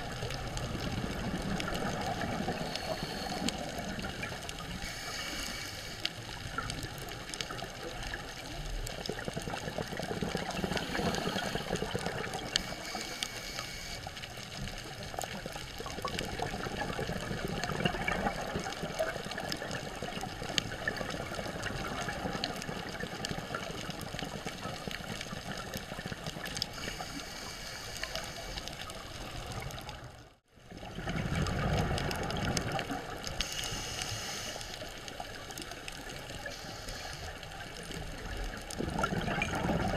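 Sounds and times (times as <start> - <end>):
small clicks and crackles: 0.0 - 39.9
underwater watery hiss: 0.1 - 6.7, 10.3 - 14.3, 26.0 - 29.6, 33.2 - 35.4, 36.4 - 38.3.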